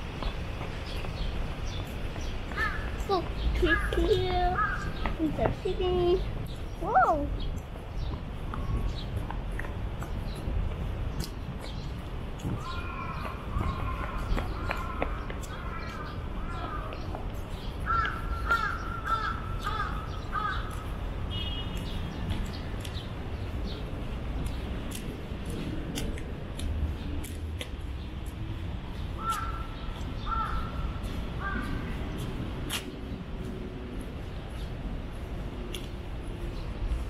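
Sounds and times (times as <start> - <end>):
crow cawing: 2.5 - 2.9, 4.6 - 4.9, 12.6 - 16.9, 17.9 - 20.8, 29.2 - 31.9.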